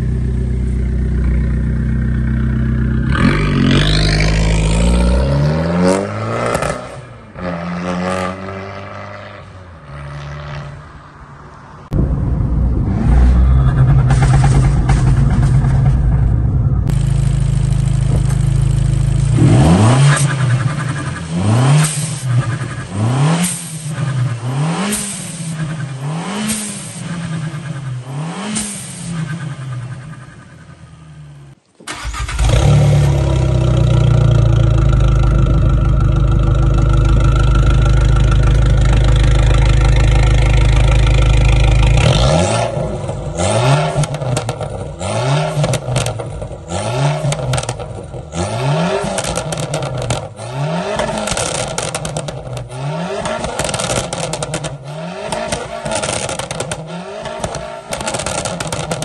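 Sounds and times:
car engine revving: 0:00.0 - 0:10.8, 0:11.9 - 0:59.0
exhaust crackles: 0:11.9 - 0:59.0.

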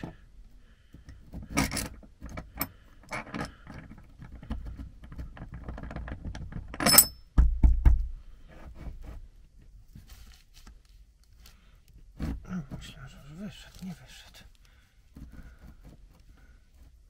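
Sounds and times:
metal bolt clicking and scraping: 0:01.1 - 0:07.2
bright ringing metal clink: 0:06.8 - 0:07.2.

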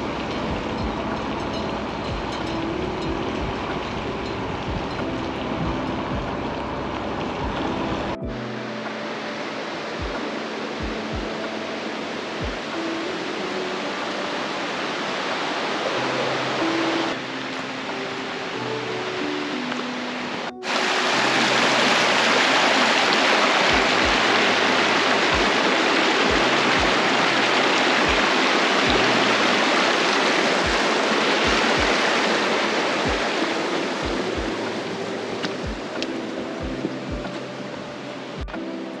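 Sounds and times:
background music with bass notes: 0:00.0 - 0:09.1, 0:23.7 - 0:29.5, 0:34.0 - 0:39.0
stream rushing over rocks: 0:00.0 - 0:39.0.

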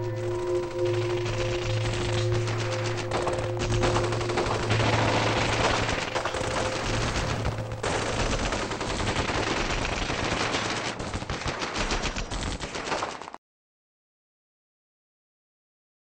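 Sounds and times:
machine-gun bursts: 0:01.8 - 0:13.2.

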